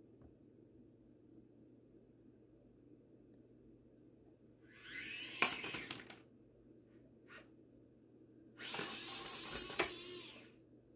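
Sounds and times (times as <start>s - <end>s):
small electric motor whining: 4.6s - 6.1s, 8.6s - 10.6s.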